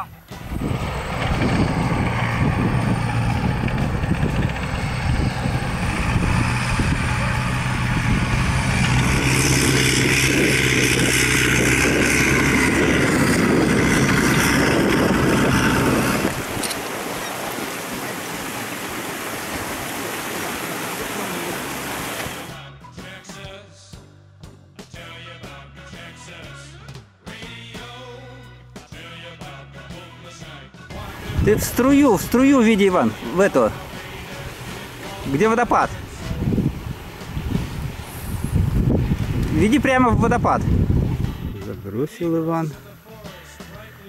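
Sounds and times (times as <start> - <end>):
tracked vehicle engine humming: 0.0 - 22.6, 30.9 - 44.0
rush of falling water: 16.2 - 22.6, 32.2 - 38.4.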